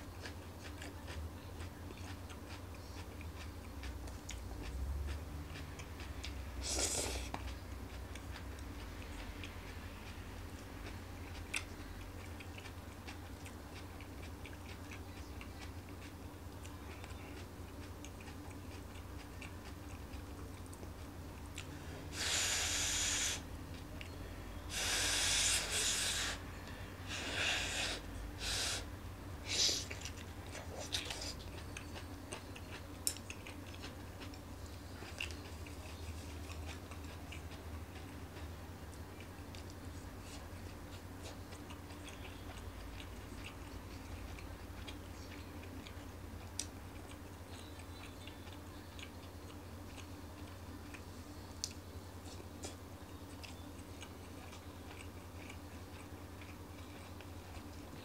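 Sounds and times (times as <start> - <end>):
quiet eating sounds: 0.0 - 58.0
hissing mouth noises: 6.6 - 7.4, 22.1 - 23.5, 24.7 - 26.4, 27.1 - 29.9
chopsticks clicking: 32.6 - 34.3.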